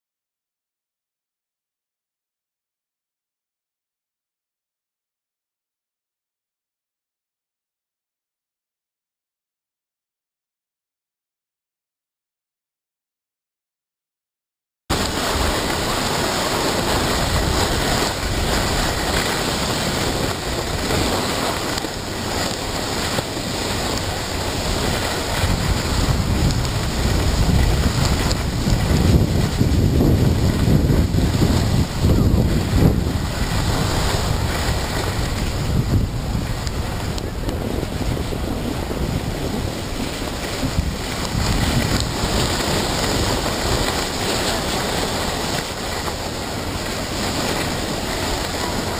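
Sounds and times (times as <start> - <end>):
skis sliding on snow: 14.9 - 48.9
wind rushing over microphone: 14.9 - 48.9.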